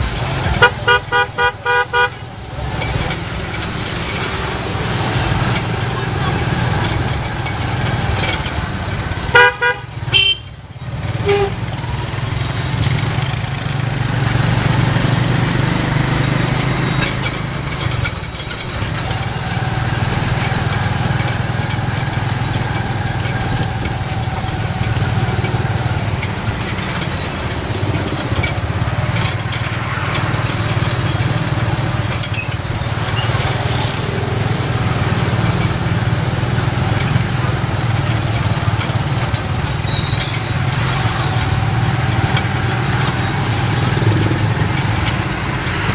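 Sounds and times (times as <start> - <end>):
city traffic: 0.0 - 45.9
motorbike engine running: 0.0 - 45.9
vehicle horn honking: 0.6 - 2.2, 9.3 - 10.6, 11.2 - 11.6.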